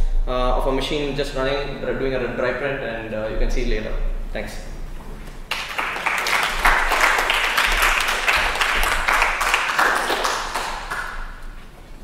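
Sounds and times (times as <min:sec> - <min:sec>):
audience applauding: 0:05.5 - 0:11.6.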